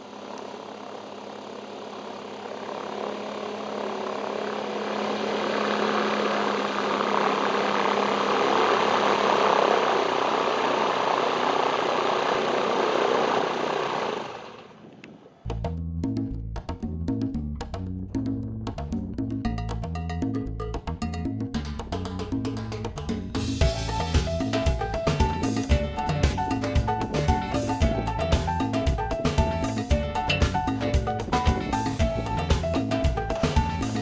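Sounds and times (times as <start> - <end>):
light aircraft engine and propeller: 0.0 - 15.4, 22.2 - 34.0
music: 15.4 - 34.0.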